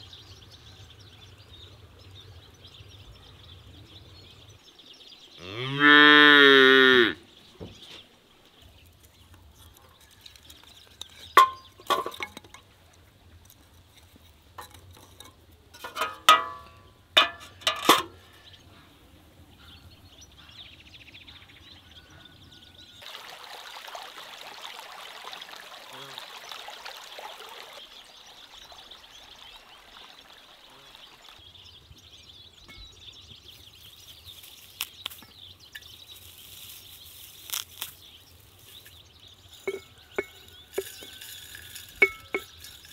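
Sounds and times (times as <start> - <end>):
wooden sticks knocking on metal: 10.9 - 12.7, 14.6 - 18.2, 39.6 - 42.9
small stream of liquid running: 23.0 - 42.9.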